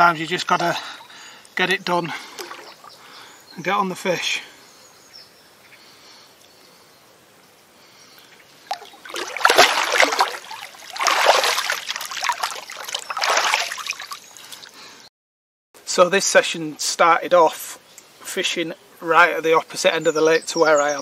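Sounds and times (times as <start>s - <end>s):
lake water splashing: 2.2s - 3.1s, 8.6s - 14.7s.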